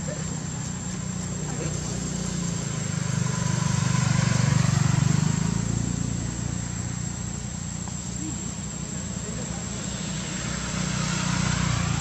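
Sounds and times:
vehicle engine hum passing: 0.0 - 12.0.

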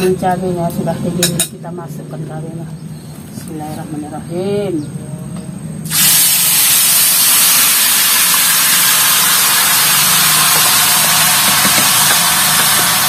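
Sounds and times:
paste sizzling in hot oil: 5.9 - 13.0.

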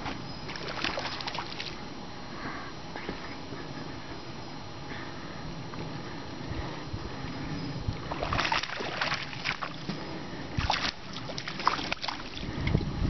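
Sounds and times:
fish splashing in water: 0.5 - 1.8, 8.1 - 9.9, 10.6 - 12.4.

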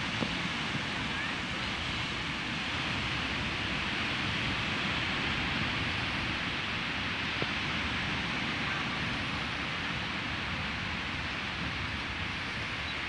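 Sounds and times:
ocean waves on shore: 0.0 - 13.0.

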